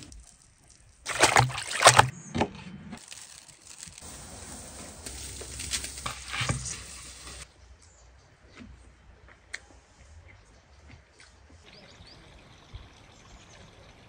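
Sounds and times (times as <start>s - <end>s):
water sloshing and splashing: 0.6s - 2.1s.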